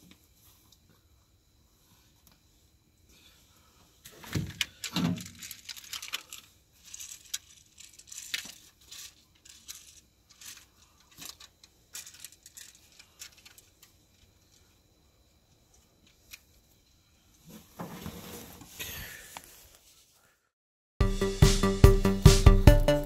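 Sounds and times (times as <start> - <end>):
rustling: 0.0 - 14.9.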